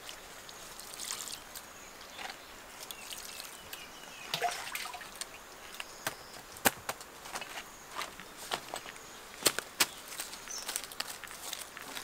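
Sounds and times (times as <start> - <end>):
water dripping and trickling: 0.0 - 5.7.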